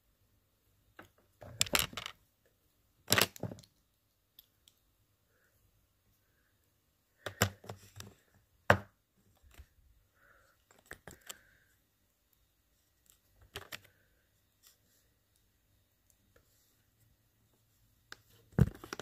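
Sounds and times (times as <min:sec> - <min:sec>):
plastic toy parts clicking: 0:01.0 - 0:02.2, 0:03.1 - 0:04.8.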